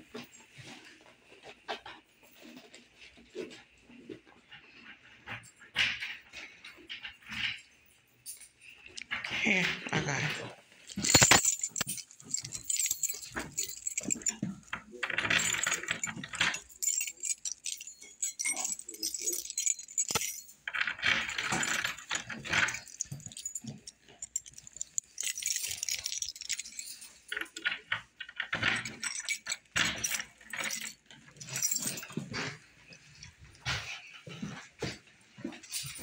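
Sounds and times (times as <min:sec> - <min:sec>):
small metal objects jangling: 0:05.3 - 0:36.0
rattling: 0:10.8 - 0:33.6.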